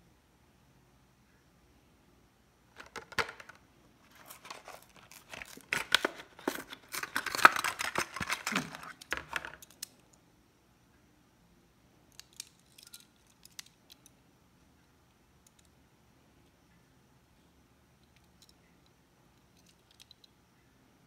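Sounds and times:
plastic packaging tearing and crinkling: 2.8s - 9.7s.

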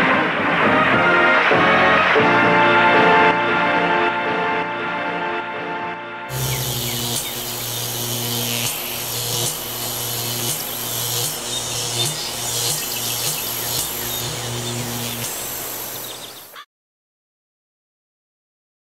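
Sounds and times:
pulsing low mechanical hum: 6.3s - 16.5s
loud hissing crackle: 6.3s - 16.6s.

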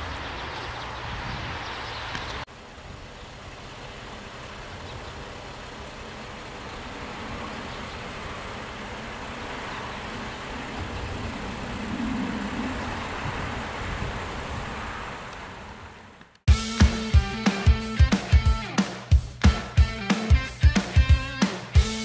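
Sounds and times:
distant road traffic rumble: 0.0s - 16.5s.

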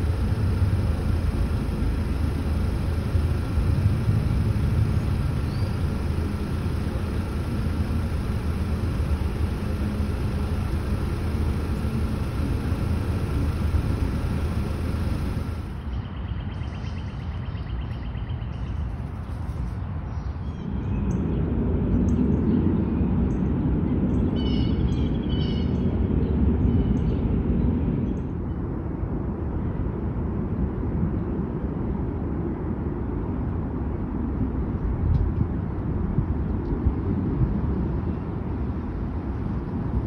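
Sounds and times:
fast ticking trill: 0.0s - 15.8s.

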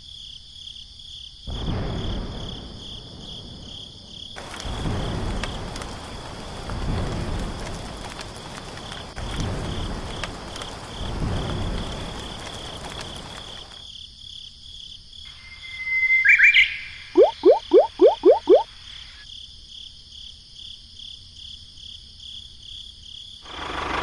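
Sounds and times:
rain falling: 2.2s - 13.9s, 17.0s - 18.8s.

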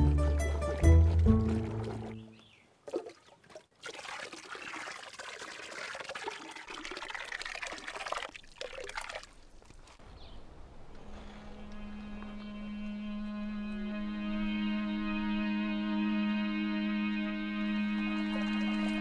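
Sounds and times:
water pouring and trickling: 0.2s - 10.0s
pulp splashing into water: 0.6s - 10.0s
low steady musical tone: 11.4s - 19.0s.

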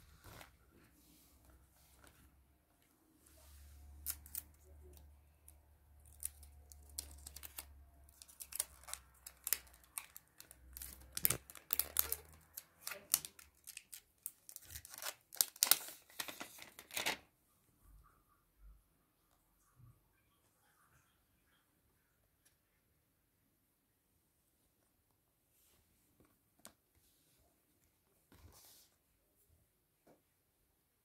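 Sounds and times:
plastic packaging crinkling: 6.0s - 17.2s.

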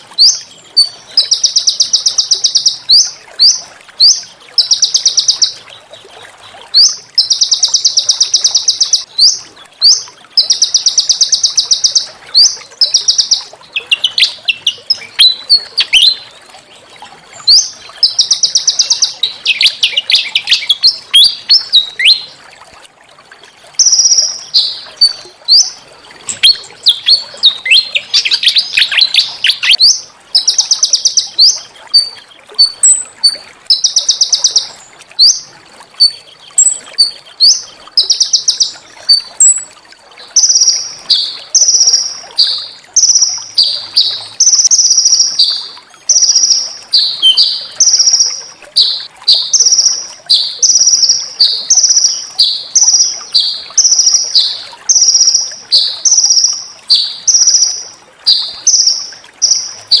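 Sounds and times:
songbird trilling: 6.8s - 16.3s, 17.5s - 22.3s, 23.8s - 33.0s, 40.4s - 60.0s.

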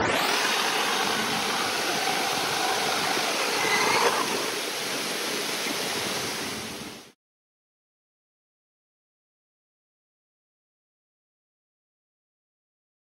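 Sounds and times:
electric motor whine: 0.0s - 4.8s
fountain water rushing: 0.0s - 7.2s
rain: 0.0s - 7.2s.

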